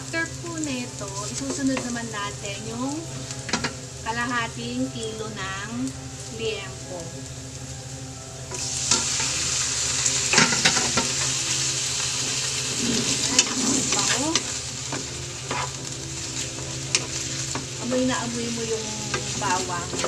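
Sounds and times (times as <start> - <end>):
pork sizzling in oil: 0.0 - 20.0
wooden spatula scraping pan: 12.2 - 17.8.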